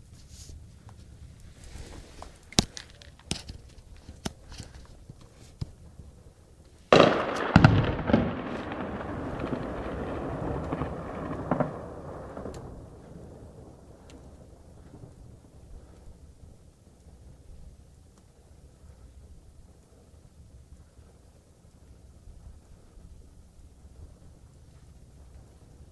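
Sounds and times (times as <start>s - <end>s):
rolling rumble: 0.0s - 25.9s
gunshots: 6.9s - 10.1s
shell explosions: 6.9s - 14.5s.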